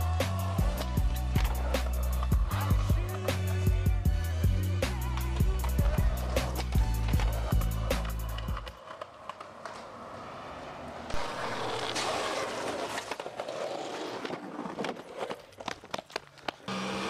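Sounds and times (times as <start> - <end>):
skateboard wheels on concrete: 0.0 - 17.0
skateboard cracks and clacks: 5.0 - 16.7.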